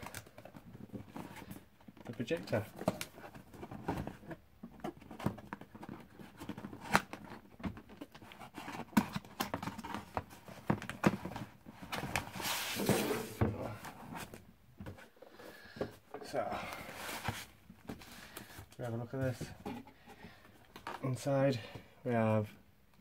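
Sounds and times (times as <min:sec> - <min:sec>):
rustling scrape: 0:12.3 - 0:13.4.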